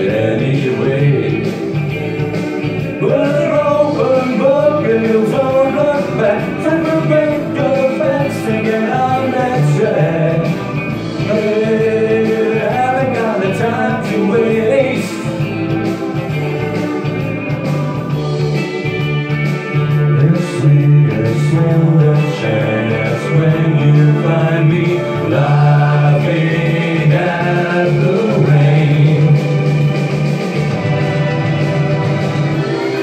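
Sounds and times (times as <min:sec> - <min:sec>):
man singing into a microphone: 0:00.0 - 0:01.6, 0:03.0 - 0:15.4, 0:20.1 - 0:29.6
pop karaoke backing track: 0:00.0 - 0:33.0.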